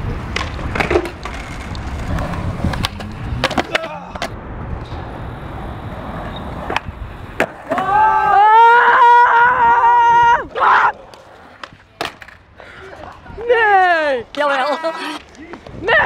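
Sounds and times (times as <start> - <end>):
skateboard wheels rolling on concrete: 0.0 - 16.0
skateboard clacking on concrete: 0.1 - 4.4, 6.2 - 7.9, 11.0 - 13.3.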